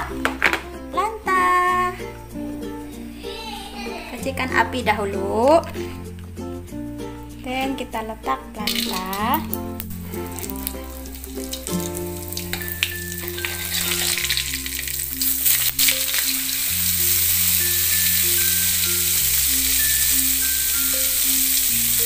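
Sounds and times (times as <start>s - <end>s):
slow background music: 0.0s - 22.0s
margarine sizzling in hot oil: 8.6s - 22.0s.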